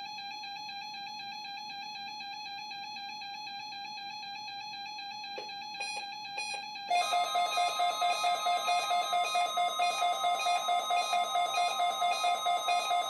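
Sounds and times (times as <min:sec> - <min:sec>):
pulsing alarm beeps: 0:05.8 - 0:13.0.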